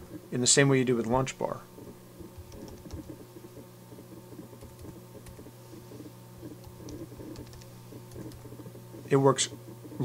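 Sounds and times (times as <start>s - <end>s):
steady low hum: 0.0s - 10.0s
keyboard typing clicks: 2.4s - 3.2s, 4.6s - 5.5s, 6.5s - 8.6s.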